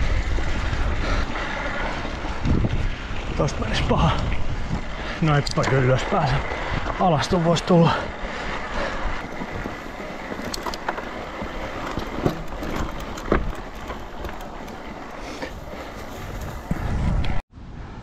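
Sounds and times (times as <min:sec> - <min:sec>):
tyre and wind noise: 0:00.0 - 0:18.0
bike knocks and rattles: 0:09.2 - 0:17.2.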